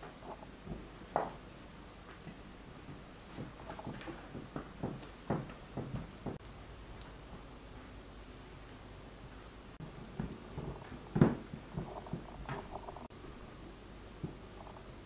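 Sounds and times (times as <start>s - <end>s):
dough patted by hand: 2.2s - 6.4s.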